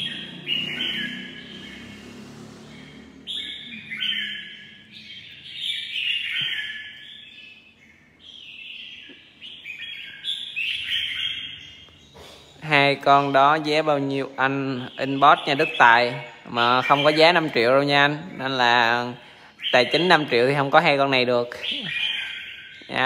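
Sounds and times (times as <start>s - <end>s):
birds singing warbled phrases: 0.0s - 23.0s.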